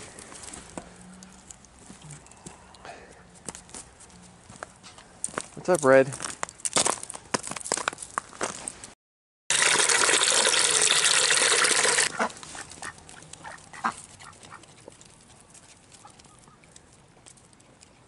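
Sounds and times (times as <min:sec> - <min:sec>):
water gushing into plastic bucket: 0:09.5 - 0:12.1.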